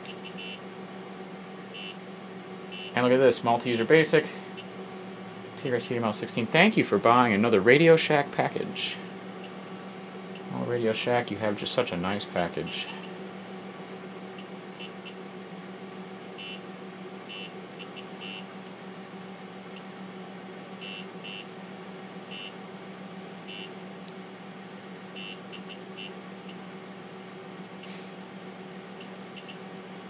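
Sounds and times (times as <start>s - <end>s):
high-pitched buzzer chirps: 0.0s - 0.6s, 1.7s - 2.0s, 2.7s - 3.0s, 14.8s - 15.2s, 16.4s - 16.6s, 17.3s - 18.5s, 20.8s - 21.5s, 22.3s - 22.6s, 23.5s - 23.8s, 25.1s - 26.2s, 29.4s - 29.6s
computer humming: 0.0s - 30.0s.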